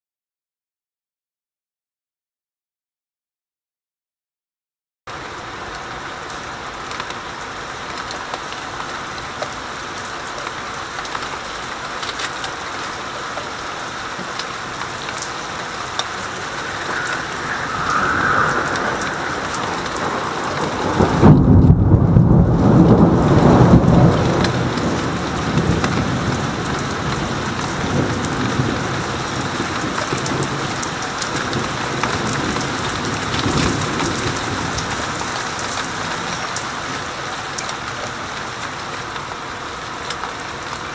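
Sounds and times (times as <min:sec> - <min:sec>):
steady rain: 0:05.1 - 0:40.9
thunder clap rumbling: 0:14.6 - 0:36.6.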